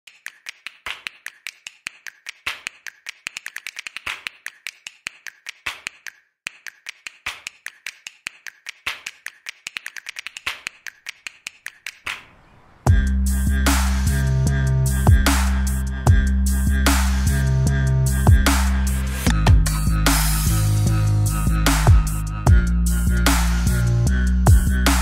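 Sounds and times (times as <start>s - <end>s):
fast irregular sharp clicks: 0.1s - 12.2s.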